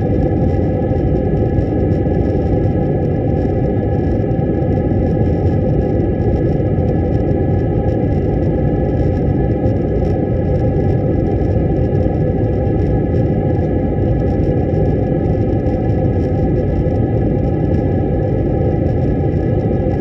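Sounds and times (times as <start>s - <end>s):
airliner engine and airflow rush: 0.0s - 20.0s
faint high whine: 0.0s - 20.0s.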